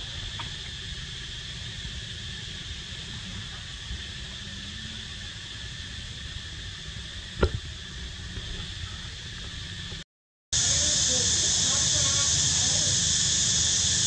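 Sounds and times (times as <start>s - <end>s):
steady background hiss: 0.0s - 10.0s, 10.6s - 14.0s.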